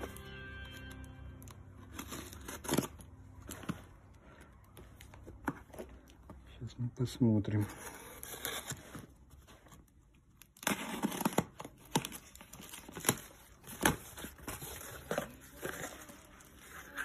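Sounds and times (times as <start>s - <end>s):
cardboard tearing and rustling: 1.7s - 4.0s, 7.6s - 17.0s.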